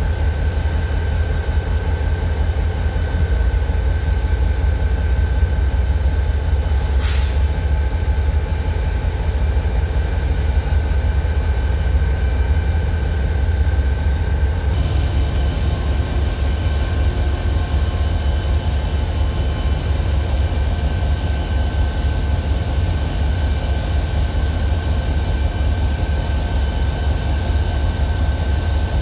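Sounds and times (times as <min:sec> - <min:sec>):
freight train rumble: 0:00.0 - 0:29.0
high-pitched whines: 0:00.1 - 0:29.0
short hiss: 0:07.0 - 0:07.4.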